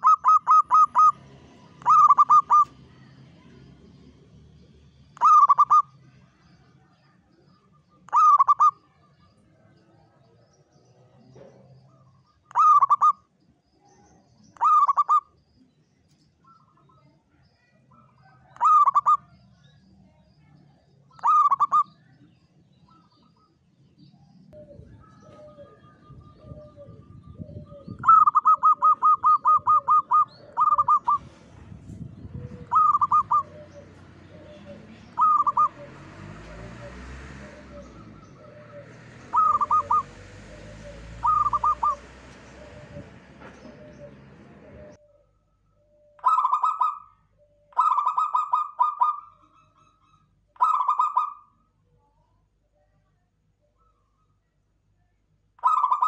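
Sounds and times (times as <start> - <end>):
doves cooing: 0.0 - 2.9, 5.2 - 6.0, 8.0 - 8.9, 11.4 - 13.2, 14.6 - 15.4, 17.9 - 19.3, 21.1 - 21.9, 24.6 - 45.2, 46.0 - 49.6, 50.6 - 51.5, 55.6 - 56.0.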